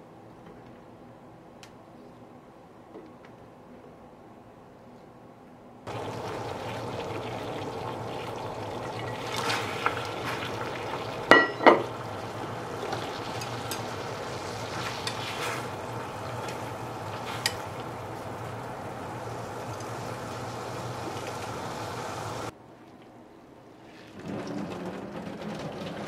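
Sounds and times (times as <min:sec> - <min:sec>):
steady hiss with low hum: 0:00.0 - 0:24.6
kitchenware clinking: 0:11.3 - 0:12.1.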